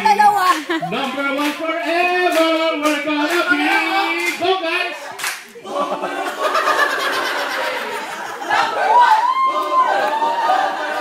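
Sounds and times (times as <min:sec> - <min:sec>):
hand claps: 0:00.4 - 0:04.4, 0:05.2 - 0:05.6
group chanting a cheer: 0:07.2 - 0:11.0.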